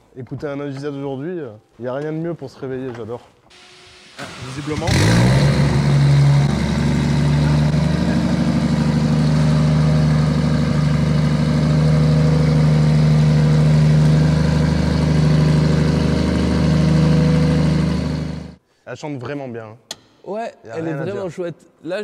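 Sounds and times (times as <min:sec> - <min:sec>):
car engine idling: 0:03.5 - 0:18.6.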